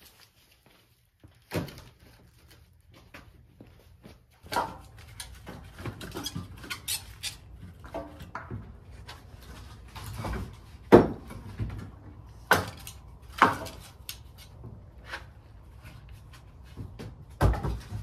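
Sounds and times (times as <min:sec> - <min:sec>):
firewood knocking and clattering: 0:04.4 - 0:06.6, 0:07.5 - 0:18.0.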